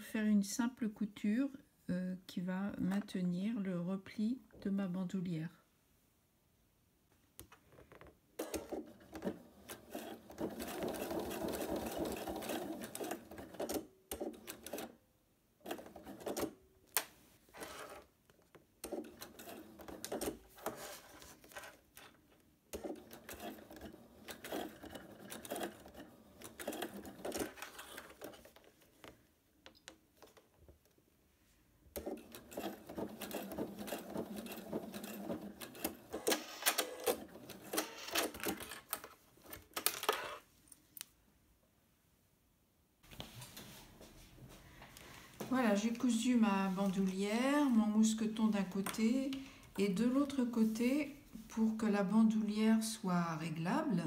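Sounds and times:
sewing machine stitching: 0:08.4 - 0:15.0, 0:15.6 - 0:16.6, 0:17.5 - 0:18.1, 0:18.8 - 0:22.1, 0:22.7 - 0:28.6, 0:31.9 - 0:40.4.

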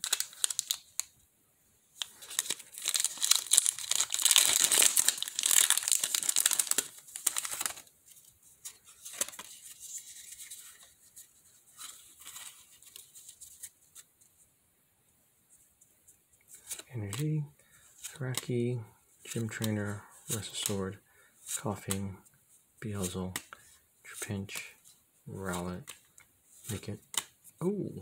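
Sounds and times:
cards rustling and clicking: 0:00.0 - 0:01.1, 0:02.0 - 0:14.1, 0:16.4 - 0:17.2, 0:18.0 - 0:18.6, 0:19.3 - 0:20.9, 0:22.9 - 0:27.6
foil wrapper crinkling: 0:00.0 - 0:01.1, 0:02.0 - 0:07.9, 0:08.7 - 0:10.9.

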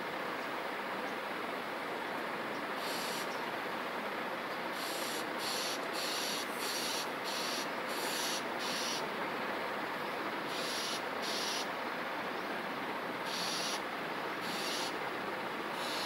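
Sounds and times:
steady background hiss: 0:00.0 - 0:16.0
high-pitched hissing buzzes: 0:04.8 - 0:09.0, 0:10.5 - 0:11.7, 0:13.3 - 0:13.8, 0:14.4 - 0:15.0.

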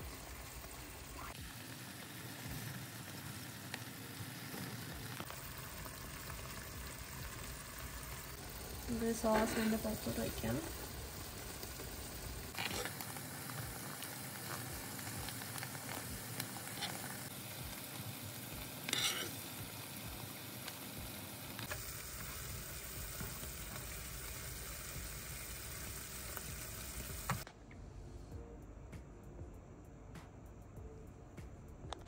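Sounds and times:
fish sizzling in a frying pan: 0:00.0 - 0:27.5
spoon scraping a pan: 0:12.5 - 0:13.1, 0:16.6 - 0:17.1, 0:18.8 - 0:19.6.

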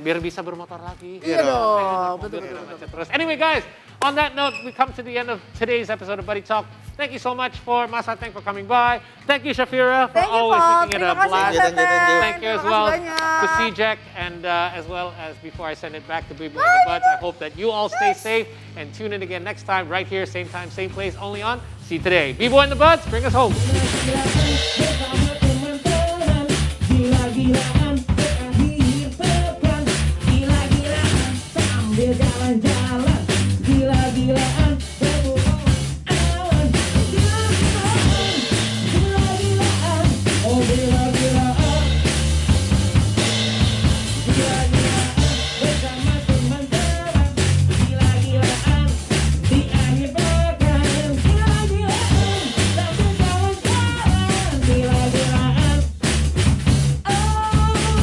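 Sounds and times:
drum kit beat: 0:10.1 - 0:14.4, 0:16.3 - 0:18.6, 0:22.0 - 0:58.0
live band playing: 0:10.2 - 0:13.8, 0:16.6 - 0:18.6, 0:23.5 - 0:58.0
bass line: 0:20.6 - 0:58.0.

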